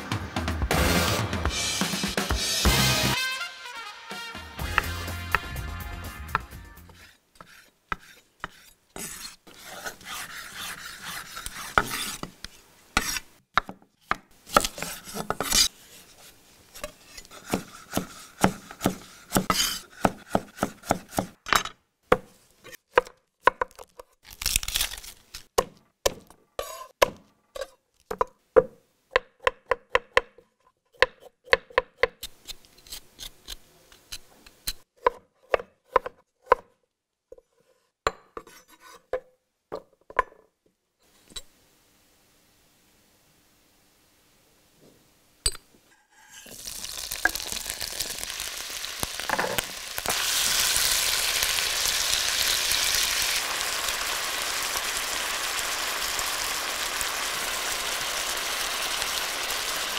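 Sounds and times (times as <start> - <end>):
knife chopping on wooden board: 17.4 - 21.4, 25.6 - 27.3, 35.0 - 36.7.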